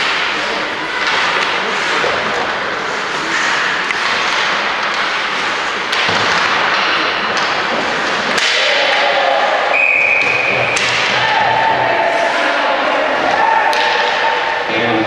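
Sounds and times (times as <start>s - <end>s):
hockey stick striking puck: 0.0s - 9.4s, 10.2s - 11.7s, 13.3s - 14.5s
crowd voices: 0.0s - 15.0s
referee whistle: 9.7s - 10.5s.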